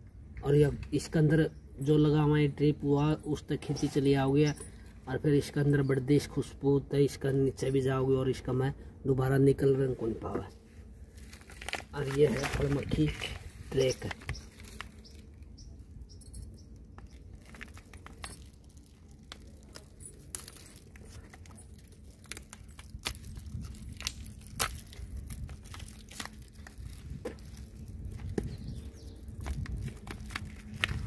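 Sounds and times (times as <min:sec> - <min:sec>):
foil sachet crinkling and tearing: 0:11.0 - 0:15.4, 0:16.9 - 0:31.0.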